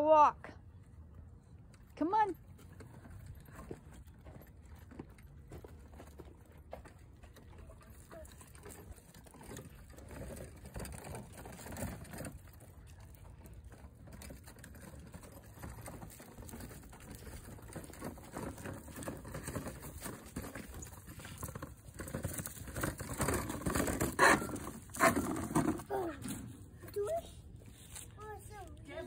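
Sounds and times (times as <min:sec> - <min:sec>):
toy wheelbarrow rolling over mulch: 0:02.4 - 0:29.0.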